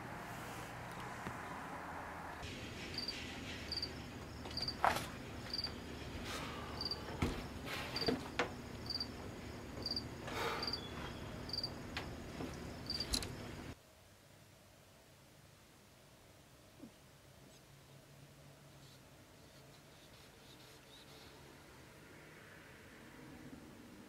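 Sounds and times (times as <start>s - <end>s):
cricket chirping: 2.9s - 13.8s.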